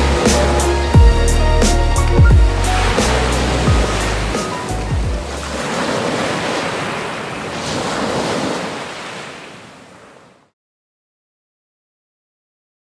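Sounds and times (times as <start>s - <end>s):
sea waves washing in: 0.0s - 10.5s.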